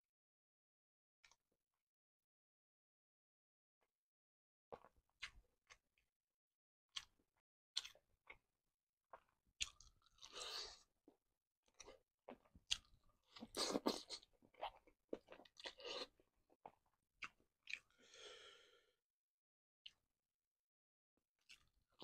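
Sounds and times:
wet mouth chewing and smacking: 0:07.8 - 0:08.4, 0:09.1 - 0:17.9, 0:21.4 - 0:21.8.

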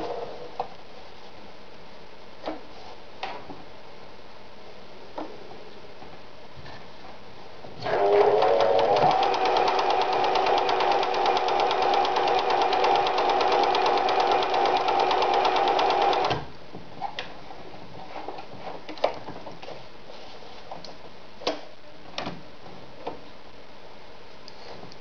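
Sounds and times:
sewing machine stitching: 0:07.8 - 0:16.4
control dials clicking: 0:07.9 - 0:16.4.

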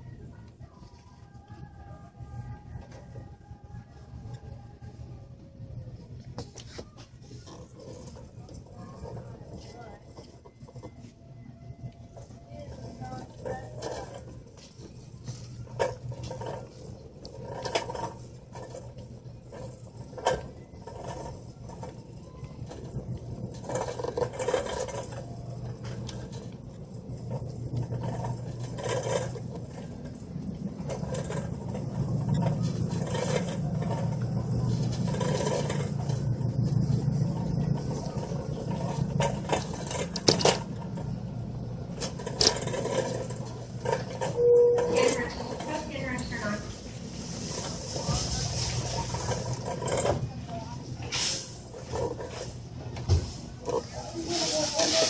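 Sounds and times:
shopping cart rattling: 0:00.1 - 0:55.0
shopping cart clacks: 0:05.7 - 0:55.0.

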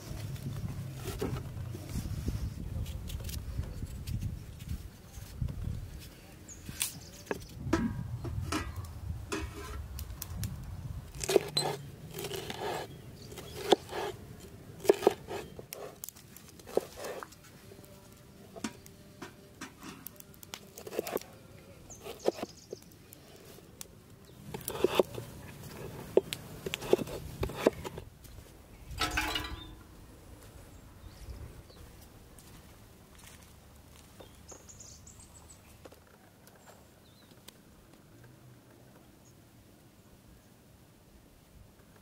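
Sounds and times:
knife chopping on wooden board: 0:11.2 - 0:14.2, 0:14.8 - 0:15.5, 0:22.0 - 0:22.5, 0:24.5 - 0:25.2, 0:26.1 - 0:28.0.

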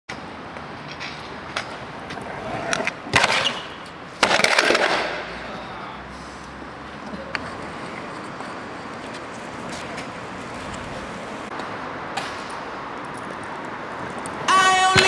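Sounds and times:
street traffic hum: 0:00.1 - 0:15.0
scooter wheels rolling over stone: 0:01.5 - 0:05.1.

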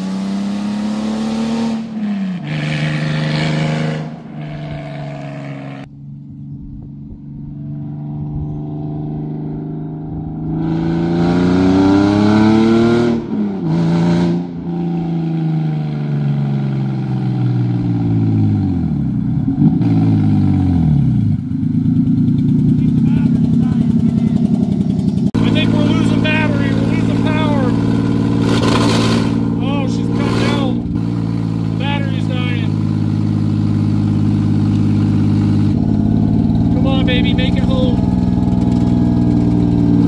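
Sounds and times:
car engine accelerating: 0:00.0 - 0:40.0
gear change: 0:21.6 - 0:40.0.

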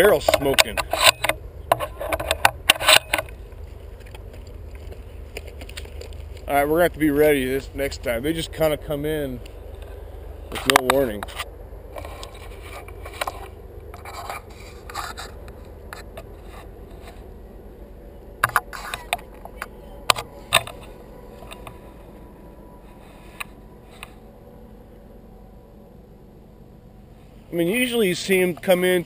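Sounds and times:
handling scrapes and rubbing: 0:09.8 - 0:17.3, 0:22.8 - 0:24.2.

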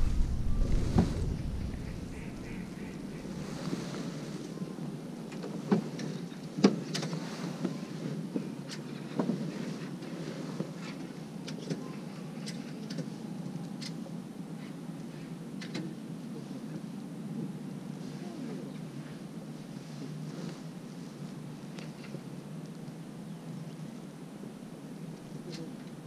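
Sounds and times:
wind noise on microphone: 0:00.0 - 0:04.6.

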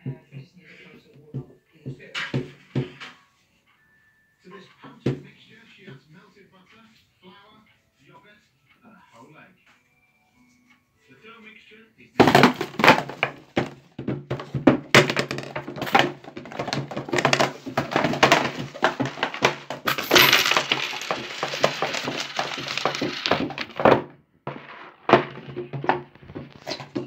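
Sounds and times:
scraping and rustling: 0:12.2 - 0:27.0
small objects clattering: 0:12.2 - 0:27.0.

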